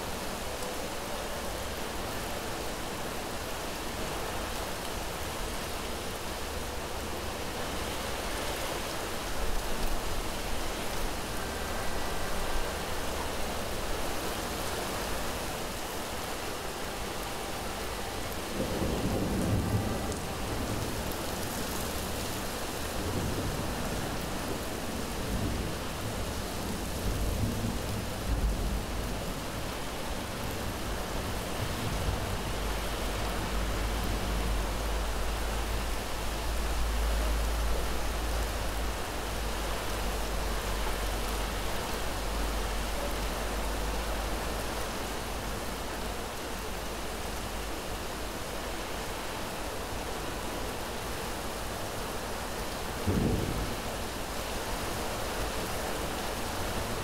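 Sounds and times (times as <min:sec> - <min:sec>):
heavy rain falling: 0:00.0 - 0:57.0
thunder rumbling: 0:53.0 - 0:54.3.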